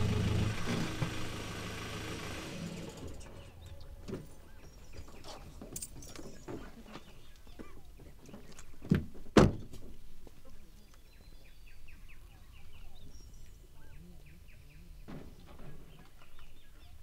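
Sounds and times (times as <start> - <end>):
bird chirping: 3.2 - 8.9, 10.7 - 17.0.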